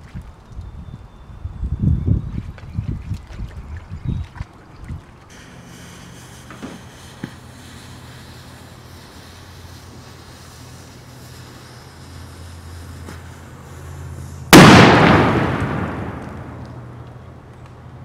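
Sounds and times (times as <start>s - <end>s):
wind on microphone: 0.0s - 5.3s.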